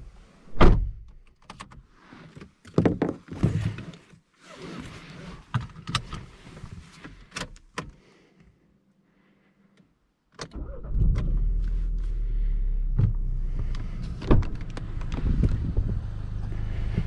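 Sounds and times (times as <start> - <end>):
car door thump: 0.5 - 1.0.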